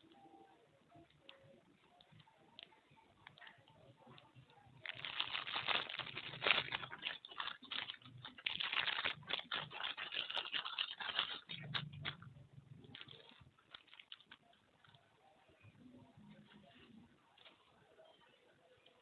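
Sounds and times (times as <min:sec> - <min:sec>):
plastic bag crinkling: 0:03.3 - 0:15.1.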